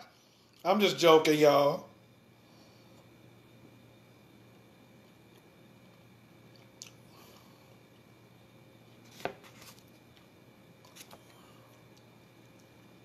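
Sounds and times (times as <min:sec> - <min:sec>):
sandwich rustling on paper plate: 0:09.0 - 0:10.0.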